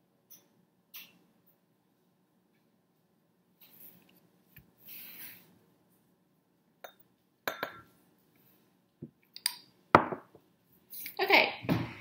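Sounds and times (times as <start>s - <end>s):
spoon clinking on glass: 6.8s - 7.9s.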